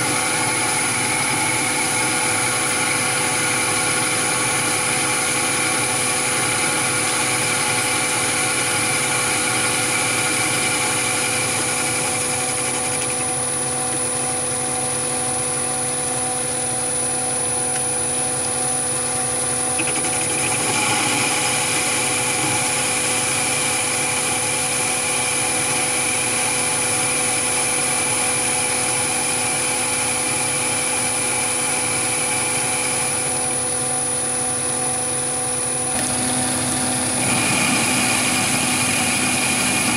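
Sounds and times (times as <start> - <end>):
lathe machine whine: 0.0 - 39.9.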